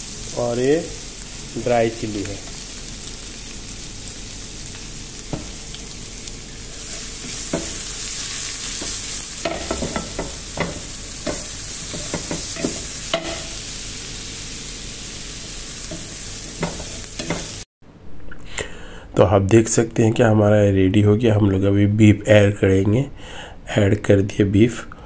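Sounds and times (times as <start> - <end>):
food sizzling in hot oil: 0.0 - 17.7.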